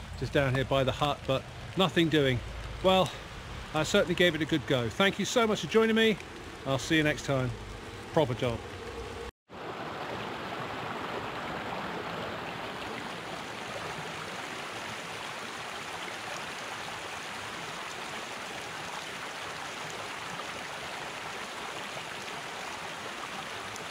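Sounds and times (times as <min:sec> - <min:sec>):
stream rushing over rocks: 0:00.0 - 0:23.9.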